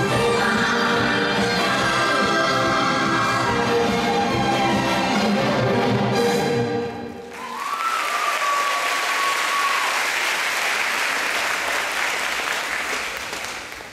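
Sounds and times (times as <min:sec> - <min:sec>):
audience applause: 0:07.3 - 0:13.9.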